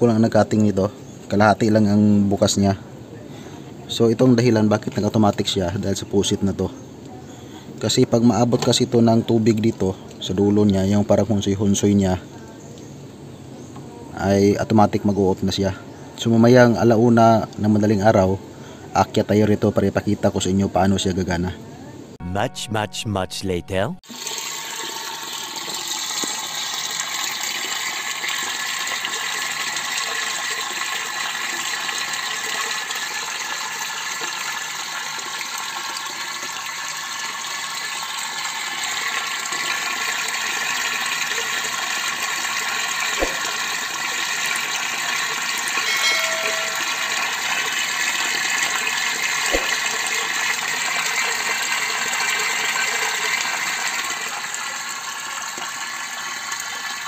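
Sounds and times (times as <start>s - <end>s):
water rushing into plastic drum: 24.1s - 45.9s, 47.0s - 57.0s.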